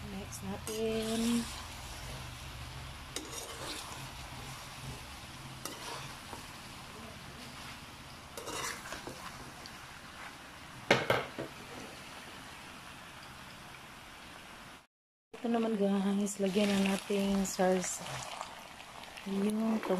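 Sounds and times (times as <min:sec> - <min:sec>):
metal spatula scraping metal pan: 0:00.6 - 0:02.2, 0:03.1 - 0:04.5, 0:05.6 - 0:06.4, 0:08.4 - 0:09.4.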